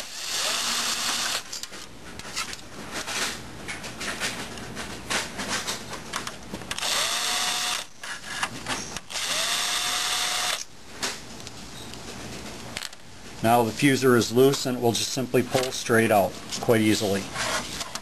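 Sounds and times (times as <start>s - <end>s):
power screwdriver motor whine: 0.0s - 1.4s, 6.8s - 7.9s, 9.1s - 10.7s.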